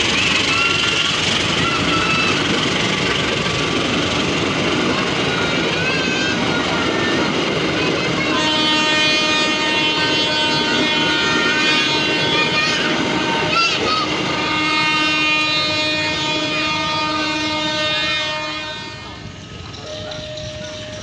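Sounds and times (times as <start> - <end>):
high wheel squeals: 0.0 - 3.5
train wheels on rails: 0.0 - 21.0
many-toned train horn: 8.1 - 21.0.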